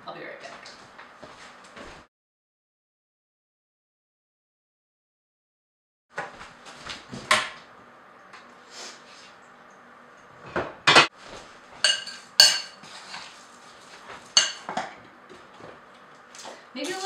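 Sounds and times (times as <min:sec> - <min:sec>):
dishes clattering: 0:11.8 - 0:12.8, 0:14.3 - 0:15.4.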